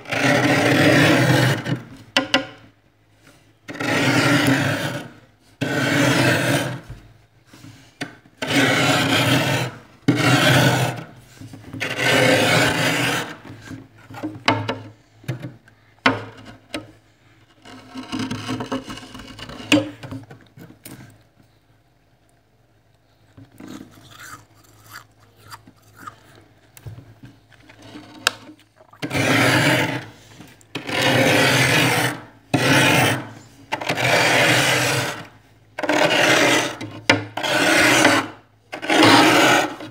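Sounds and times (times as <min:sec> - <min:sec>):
spoon scraping frost: 0:23.5 - 0:26.8.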